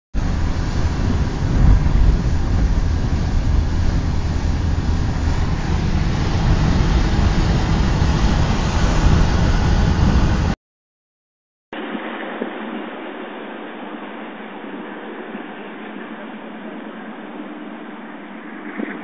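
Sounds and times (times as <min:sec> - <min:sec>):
car engine and tyres rumbling: 0:00.1 - 0:10.6
tyres hissing on wet road: 0:00.2 - 0:10.6.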